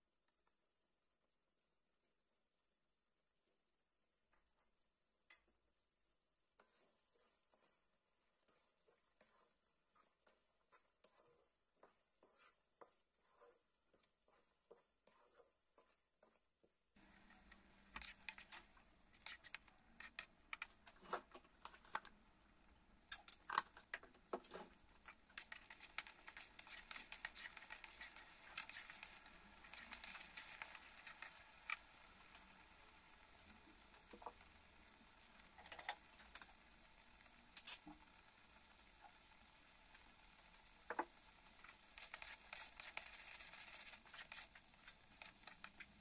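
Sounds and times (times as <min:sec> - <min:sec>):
oil sizzling and crackling: 0:04.1 - 0:46.0
wooden spatula scraping wok: 0:06.5 - 0:22.0, 0:23.6 - 0:34.5, 0:40.9 - 0:46.0.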